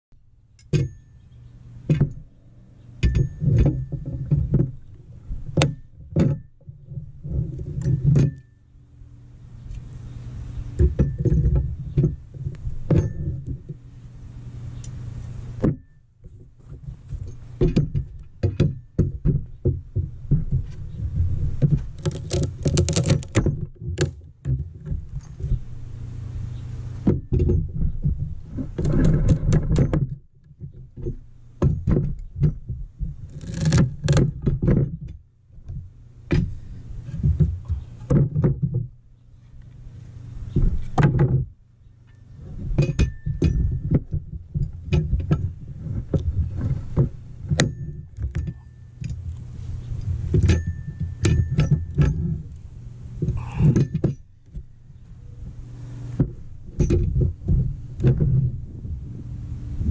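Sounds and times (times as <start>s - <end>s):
boards cracking and creaking: 15.7s - 25.6s, 27.1s - 38.9s.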